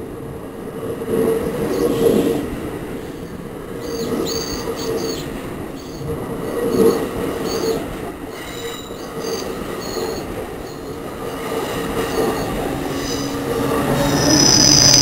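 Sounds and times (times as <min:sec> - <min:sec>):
train wheels rumbling on rails: 0:00.0 - 0:15.0
high wheel squeals: 0:12.0 - 0:15.0.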